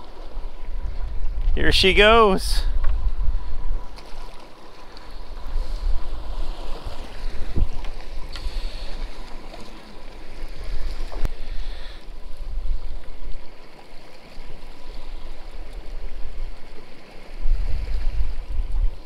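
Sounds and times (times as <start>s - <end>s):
water splashing against boat: 3.8s - 19.0s.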